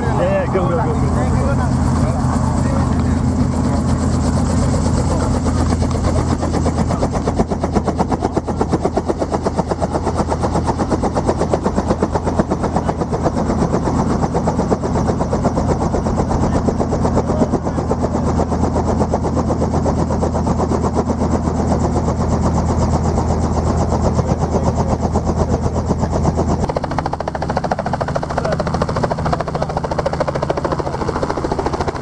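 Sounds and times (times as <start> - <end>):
helicopter engine hum: 0.0 - 32.0
helicopter rotor chopping: 0.0 - 32.0.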